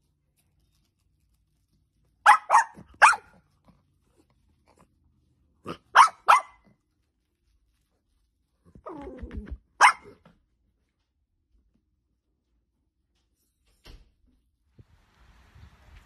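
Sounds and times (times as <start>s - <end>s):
dog barking: 2.2s - 3.5s, 5.6s - 6.8s, 9.8s - 10.3s.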